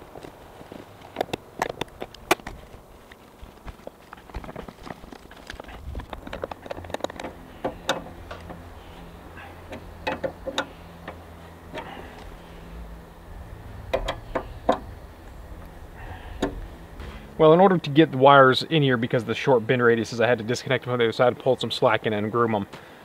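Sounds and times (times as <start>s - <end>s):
metal clicks and taps: 6.1s - 8.6s, 13.9s - 14.8s.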